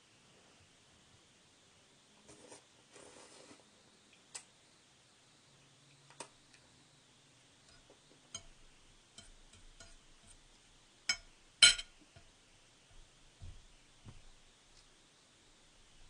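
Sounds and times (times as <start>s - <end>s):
metal fork clicking on plate: 8.4s - 8.6s, 11.1s - 11.9s.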